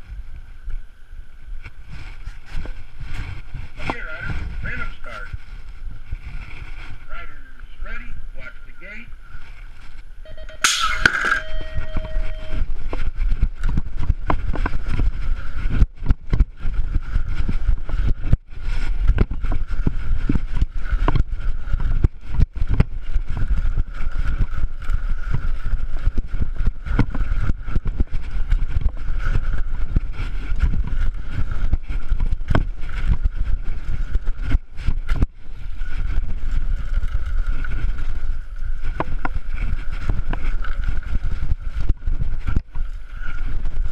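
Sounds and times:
tyres on packed dirt: 0:00.0 - 0:43.9
wind buffeting microphone: 0:00.0 - 0:43.9
short steady tone: 0:10.2 - 0:12.8
bike rattling over bumps: 0:11.1 - 0:43.9.

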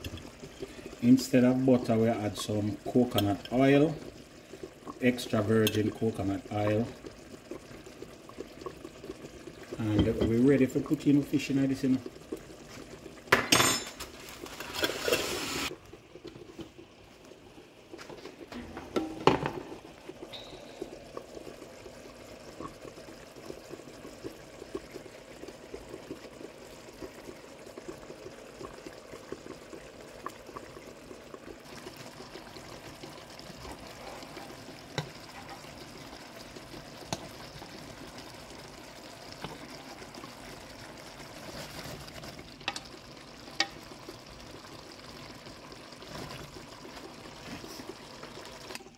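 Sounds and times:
sauce bubbling in a pan: 0:00.0 - 0:48.9.

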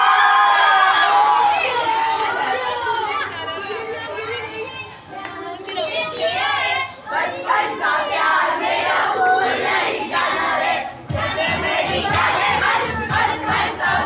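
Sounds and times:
crowd of children shouting: 0:00.0 - 0:04.8.

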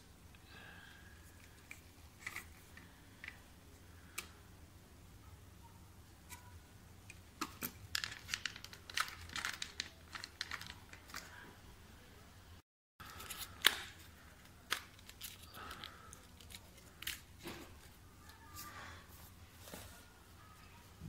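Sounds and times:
plastic parts clicking and scraping: 0:01.3 - 0:03.4, 0:07.1 - 0:11.4, 0:13.0 - 0:18.0.

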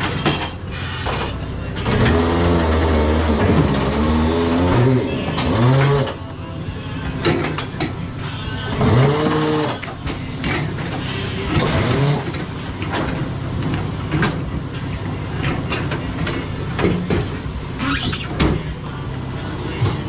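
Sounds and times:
clanks and knocks: 0:00.0 - 0:01.3, 0:07.2 - 0:08.0, 0:09.7 - 0:14.6, 0:15.4 - 0:17.4, 0:18.3 - 0:18.7
mechanical hum: 0:00.0 - 0:20.0.

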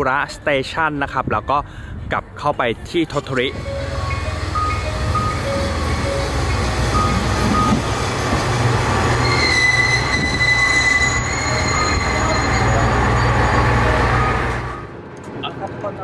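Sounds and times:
train rumble: 0:03.1 - 0:16.0
metallic wheel squeal: 0:09.0 - 0:14.8.

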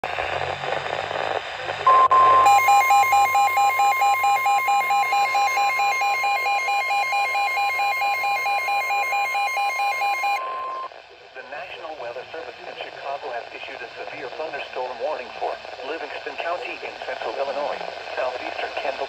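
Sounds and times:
radio hiss: 0:00.0 - 0:06.7, 0:10.4 - 0:19.0
fast pulsing alert beeps: 0:01.9 - 0:10.9
steady warning alarm tone: 0:01.9 - 0:10.9.

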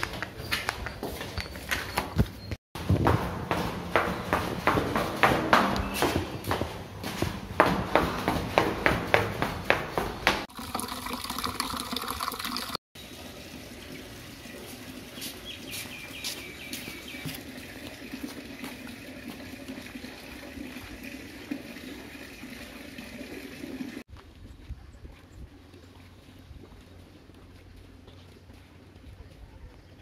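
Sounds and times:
sandal footsteps on stone stairs: 0:00.0 - 0:10.5, 0:15.2 - 0:17.4
outdoor background noise: 0:00.0 - 0:30.0
tap water running into bucket: 0:10.5 - 0:15.2, 0:17.2 - 0:24.0.

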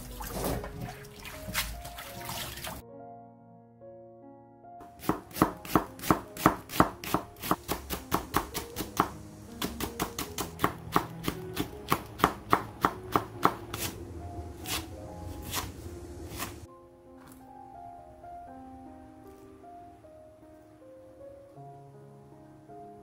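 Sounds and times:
soft background music: 0:00.0 - 0:23.0
knife chopping on wooden board: 0:05.0 - 0:14.0, 0:15.4 - 0:16.6.

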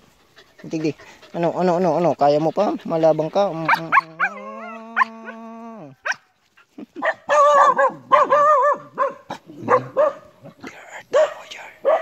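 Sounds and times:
dog whining and yipping: 0:03.7 - 0:05.1.

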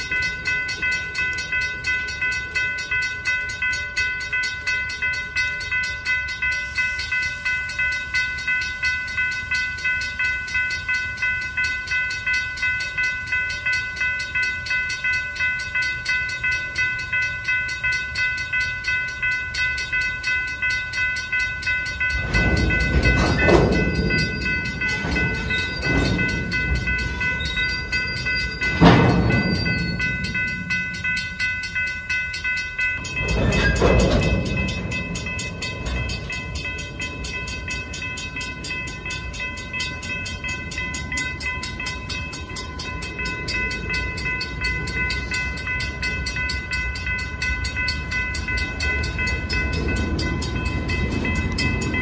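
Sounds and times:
freight cars rolling on rails: 0:00.0 - 0:52.0
railroad crossing bell ringing: 0:00.0 - 0:52.0
metal clanks: 0:22.1 - 0:31.2, 0:33.0 - 0:39.2.

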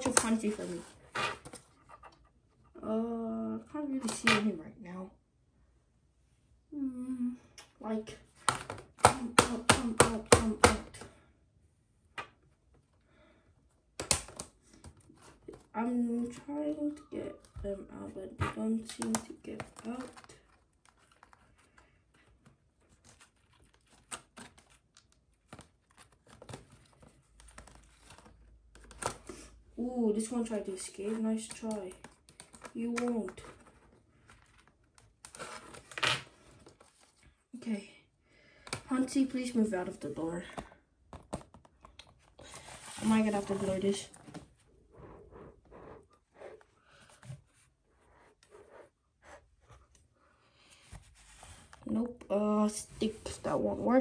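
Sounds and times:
rustling and scratching handling: 0:00.0 - 0:02.4, 0:14.3 - 0:29.4, 0:30.3 - 0:37.4, 0:39.1 - 0:52.0.

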